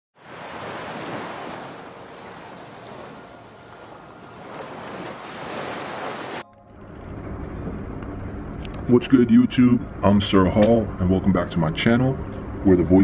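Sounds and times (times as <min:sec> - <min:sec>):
ocean waves breaking on beach: 0:00.2 - 0:06.5.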